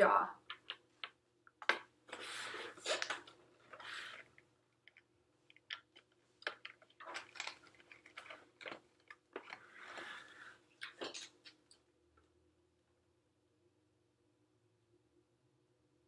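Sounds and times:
paper pages rustling: 0:02.1 - 0:04.4, 0:05.6 - 0:11.6.

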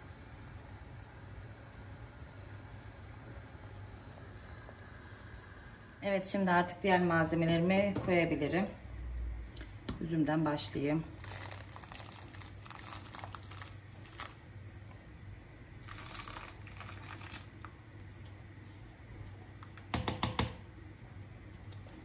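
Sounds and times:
raisins pattering into liquid: 0:11.2 - 0:14.5, 0:15.8 - 0:18.1.

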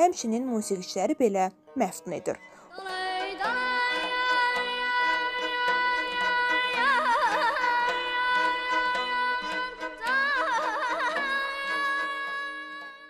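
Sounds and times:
plucked lute strings: 0:01.8 - 0:13.0
person singing with trills: 0:02.6 - 0:13.0.

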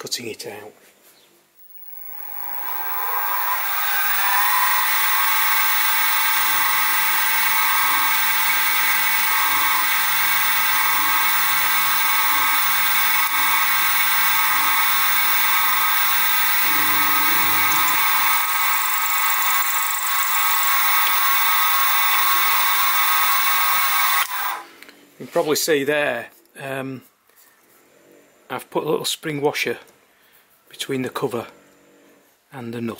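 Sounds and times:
end mill cutting metal: 0:01.6 - 0:24.6
milling machine spindle whine: 0:01.6 - 0:24.6.

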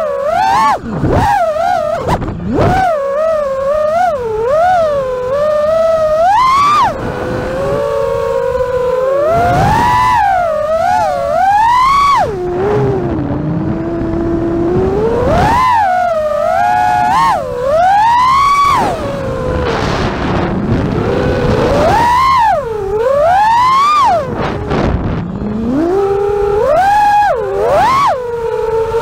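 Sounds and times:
quadcopter motors whining: 0:00.0 - 0:29.0.

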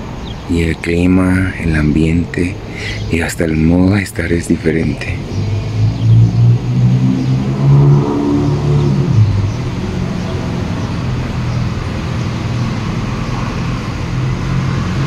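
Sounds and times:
car engine accelerating: 0:04.7 - 0:15.0.

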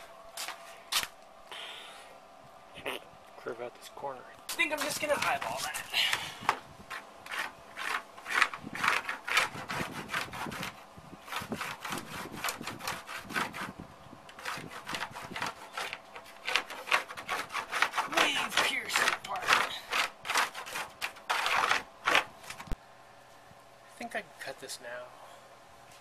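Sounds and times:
pen scratching on fiberglass: 0:06.9 - 0:22.6.

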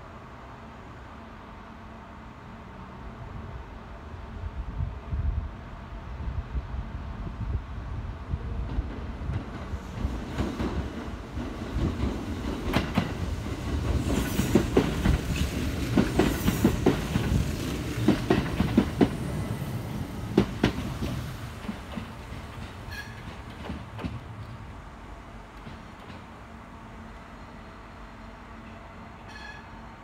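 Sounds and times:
low train rumble: 0:00.0 - 0:30.0
train wheels clacking over rail joints: 0:08.8 - 0:19.3, 0:20.3 - 0:24.6, 0:25.5 - 0:26.4
high-pitched wheel squeal: 0:29.3 - 0:29.8.

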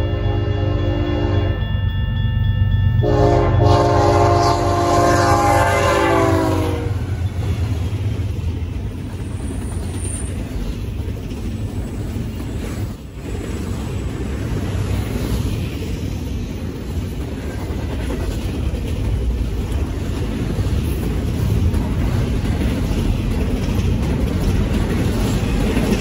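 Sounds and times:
locomotive horn blast: 0:00.0 - 0:01.6, 0:03.0 - 0:07.4
diesel locomotive rumble: 0:02.3 - 0:26.0
freight cars rolling by: 0:06.7 - 0:26.0.

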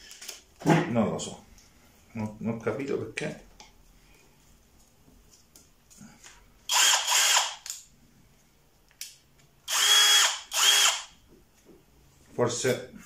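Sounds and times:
cordless drill whining: 0:06.7 - 0:07.6, 0:09.7 - 0:11.1.

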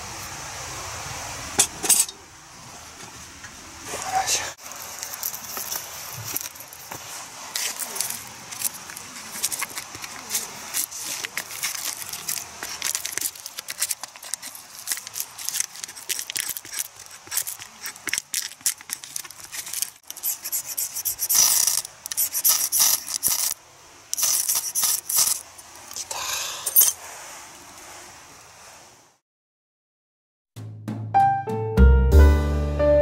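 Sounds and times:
knife scraping bark: 0:04.8 - 0:26.1.

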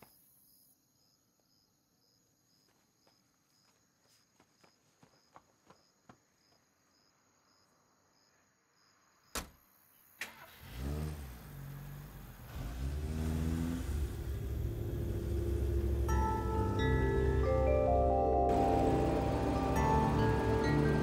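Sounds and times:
light footsteps: 0:02.7 - 0:06.6
engine starting and running: 0:10.2 - 0:21.0.

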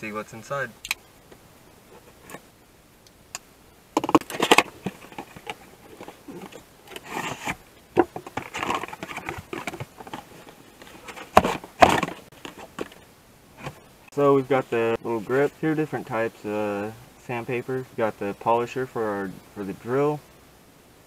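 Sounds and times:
cardboard and paper crackling: 0:04.0 - 0:13.9.

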